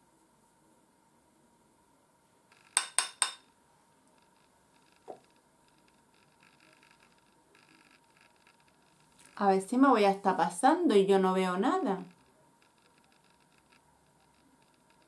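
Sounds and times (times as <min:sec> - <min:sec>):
sharp hard clinks: 0:02.6 - 0:03.5.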